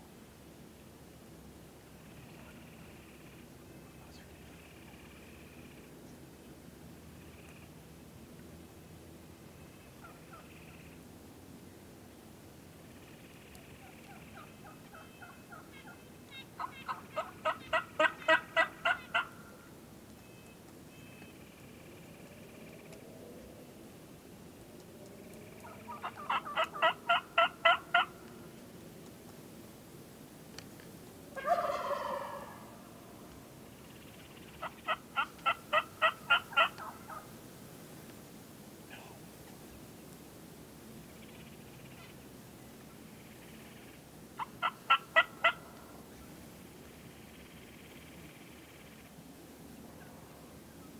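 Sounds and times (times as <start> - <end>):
wild turkey yelping: 10.0 - 11.0, 13.3 - 19.7, 25.5 - 28.3, 31.4 - 32.8, 33.9 - 37.3, 44.4 - 46.3.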